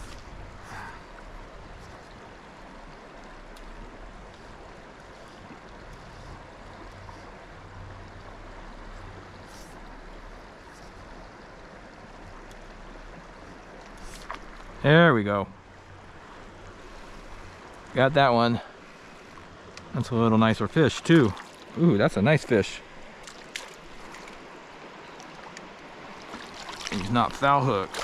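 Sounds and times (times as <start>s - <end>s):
creek flowing: 0.0s - 28.0s
faint ticks: 3.2s - 7.3s, 12.4s - 12.7s.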